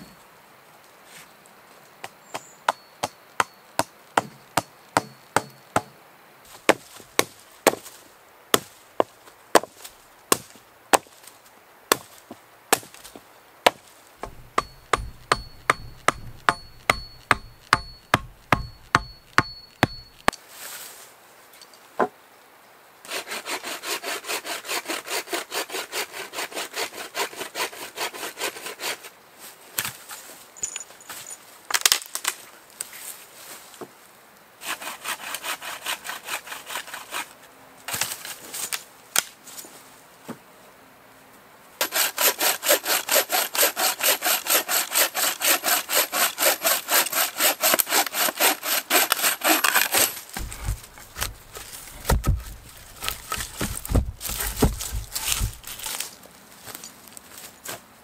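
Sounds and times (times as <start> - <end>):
knife chopping wood: 2.7 - 5.9, 6.6 - 7.9, 8.6 - 11.1, 12.7 - 13.1, 13.7 - 20.3, 46.4 - 56.0
bow saw rasping through branch: 13.7 - 20.3, 23.1 - 29.1, 34.6 - 37.4, 41.8 - 56.0.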